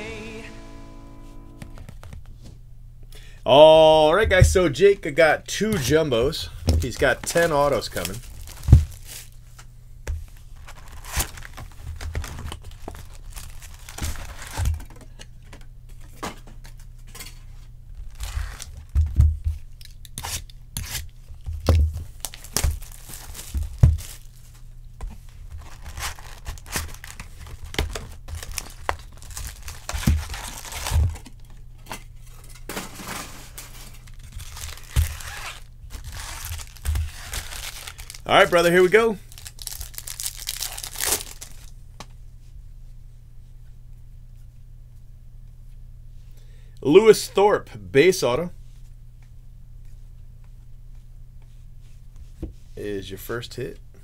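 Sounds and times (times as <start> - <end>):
low steady hum: 0.0 - 54.0
wrappers torn and crinkled: 6.8 - 9.5, 10.4 - 14.9, 17.9 - 19.0, 22.1 - 24.6, 25.5 - 31.6, 33.5 - 41.8.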